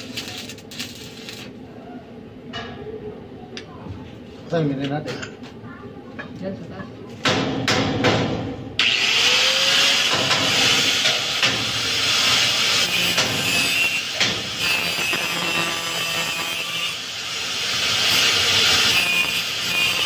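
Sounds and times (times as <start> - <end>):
welding arc crackling and hissing: 0.0 - 1.6, 8.9 - 20.0.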